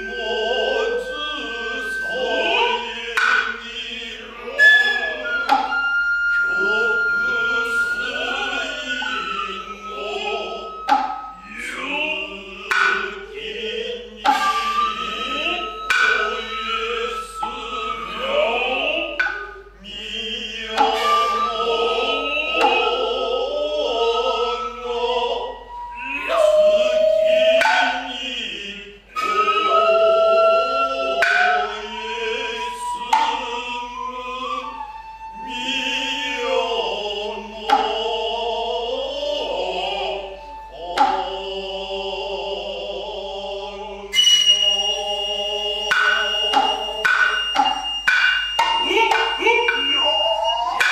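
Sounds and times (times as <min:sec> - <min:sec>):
bamboo flute high notes: 0:00.0 - 0:50.9
hand drums struck sharply: 0:12.6 - 0:13.3, 0:45.8 - 0:50.9.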